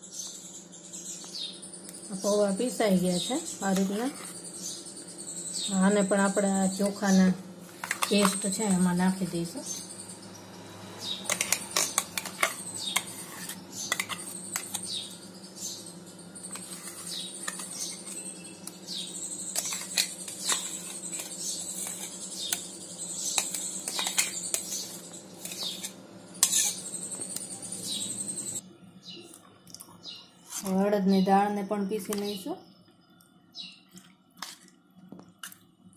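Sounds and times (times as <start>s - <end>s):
spoon scraping against steel: 3.5s - 4.6s, 7.7s - 9.0s, 11.0s - 15.2s, 16.4s - 28.6s, 34.4s - 34.7s.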